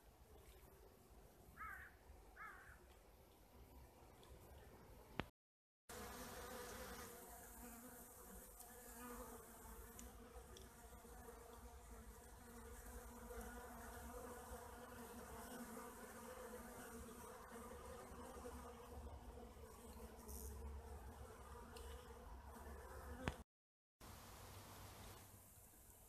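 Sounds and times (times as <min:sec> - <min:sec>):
bees buzzing: 0:05.9 - 0:23.4.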